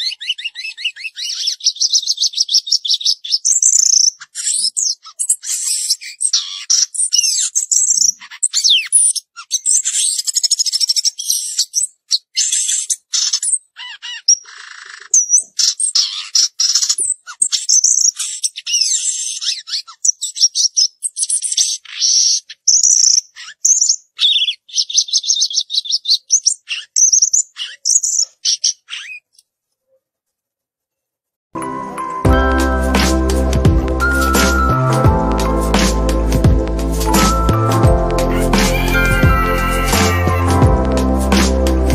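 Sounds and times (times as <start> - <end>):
songbird singing: 0.0 - 29.5.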